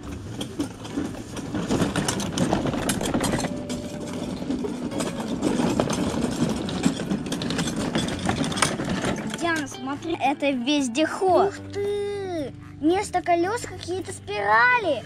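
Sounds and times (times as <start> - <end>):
plastic wheels rattling: 0.0 - 11.5.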